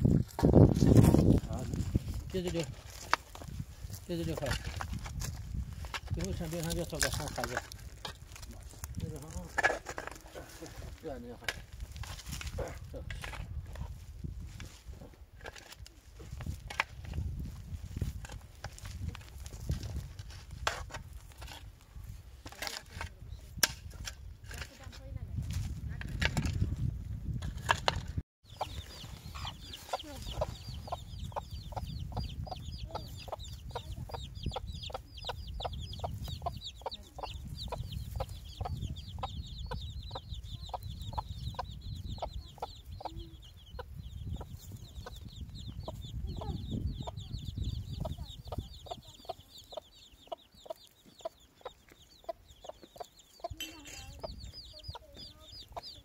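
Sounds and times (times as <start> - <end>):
hen clucking: 28.5 - 56.0
rapid high-pitched chirping: 28.5 - 56.0.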